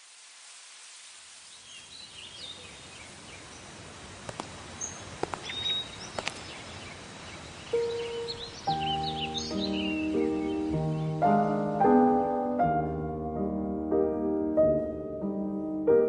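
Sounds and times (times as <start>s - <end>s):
birds chirping: 1.5s - 3.8s, 4.4s - 12.2s.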